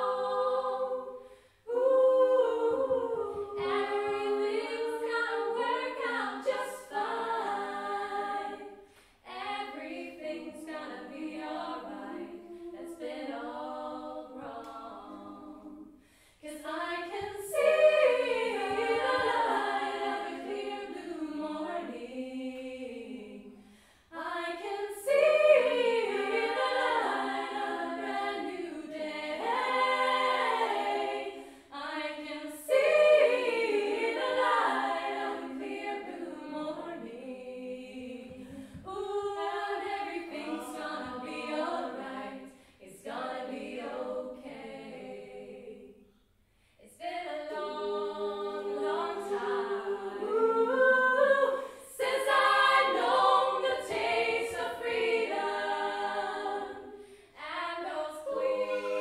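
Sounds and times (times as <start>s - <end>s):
women's choir singing a cappella: 0.0s - 59.0s.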